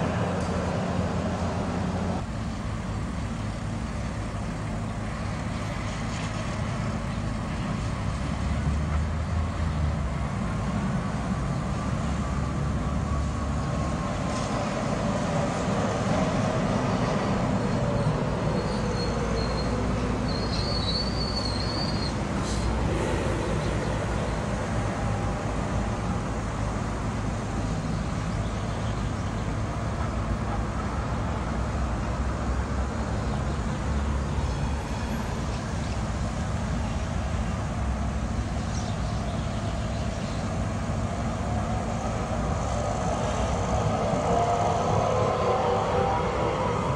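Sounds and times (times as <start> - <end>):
tram motor whine: 0.0 - 46.9
tram rumble: 0.0 - 46.9
high wheel squeal: 17.6 - 22.8.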